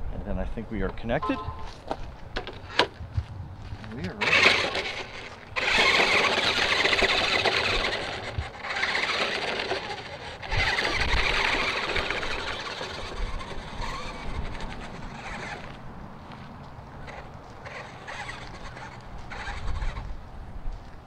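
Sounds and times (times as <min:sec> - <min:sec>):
tyres crunching over gravel: 0:01.6 - 0:21.0
electric drive whirring: 0:04.0 - 0:15.9, 0:16.9 - 0:20.3.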